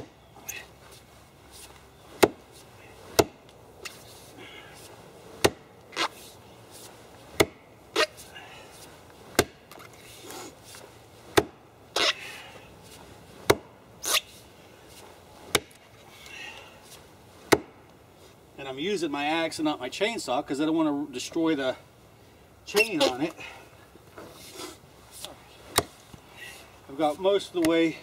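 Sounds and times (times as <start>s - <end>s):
axe chopping into wood: 2.2s - 2.4s, 3.1s - 3.4s, 5.4s - 6.1s, 7.4s - 8.1s, 9.3s - 9.8s, 11.3s - 12.2s, 13.4s - 13.7s, 15.5s - 15.8s, 17.5s - 17.8s, 25.7s - 26.0s.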